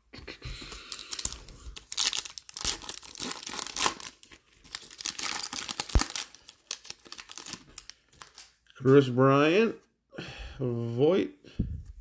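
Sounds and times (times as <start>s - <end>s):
foil wrapper tearing and crinkling: 0.9s - 8.6s.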